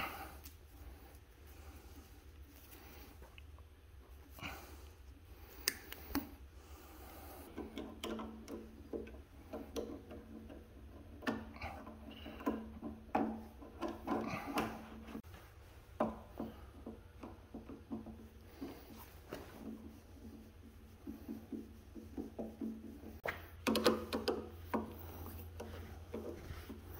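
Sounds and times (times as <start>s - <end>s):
screwdriver clicks and taps: 23.3s - 25.0s.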